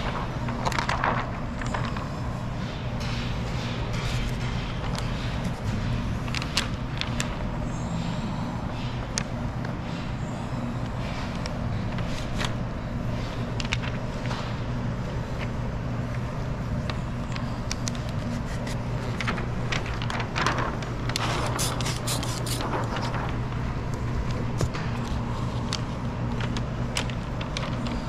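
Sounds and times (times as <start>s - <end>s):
window film crackling and scraping: 0.0s - 2.9s, 11.0s - 28.0s
steady low hum: 0.0s - 28.0s.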